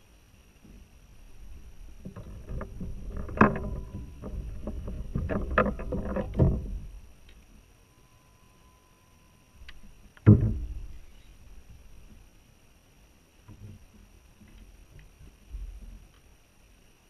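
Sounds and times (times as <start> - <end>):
sharp knocks: 10.2 - 10.9.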